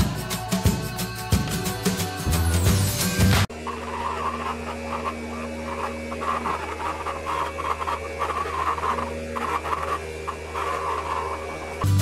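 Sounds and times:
small vacuum motor whirring: 3.5s - 12.0s.

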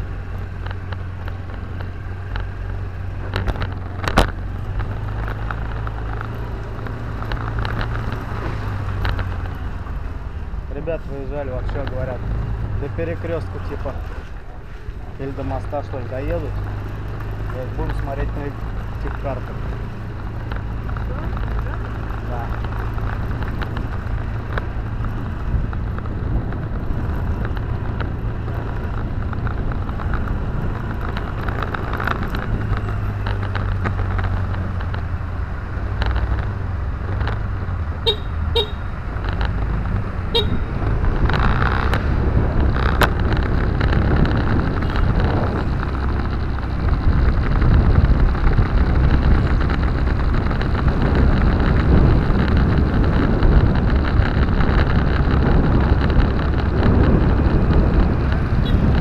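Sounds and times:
car engine: 0.0s - 59.0s
road noise: 0.0s - 59.0s
car horn toots: 38.0s - 38.9s, 40.3s - 40.7s.

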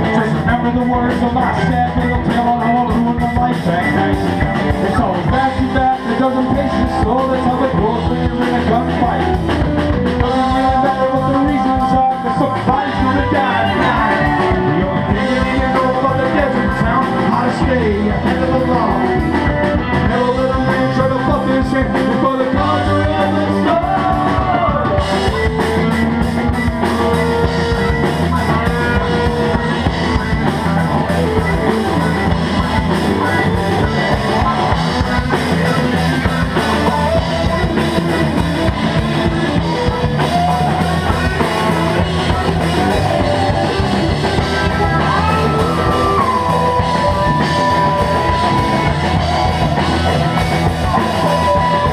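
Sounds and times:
bass guitar: 0.0s - 51.9s
drum kit: 0.0s - 51.9s
electric guitars: 0.0s - 51.9s.

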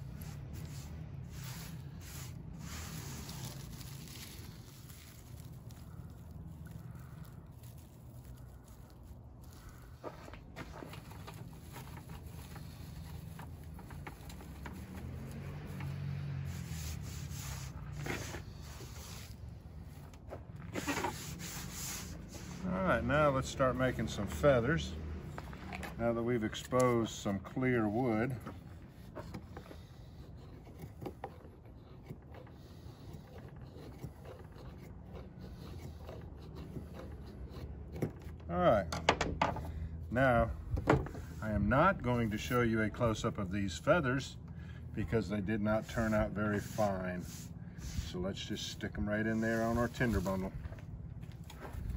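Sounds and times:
wood shavings rustling and crackling: 0.0s - 28.7s
knife scraping wood: 0.0s - 38.5s, 44.4s - 51.9s.

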